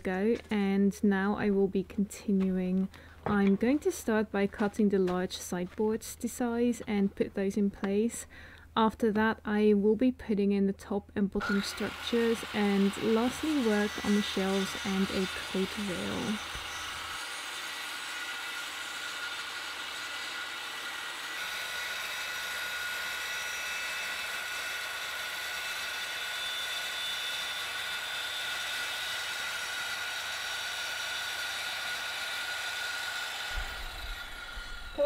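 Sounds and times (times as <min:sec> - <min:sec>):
circular saw cutting board: 0:11.4 - 0:35.0.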